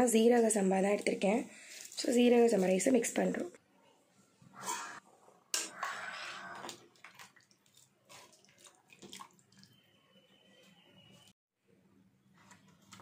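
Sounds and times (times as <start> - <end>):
stirring in a pot: 5.6 - 9.9.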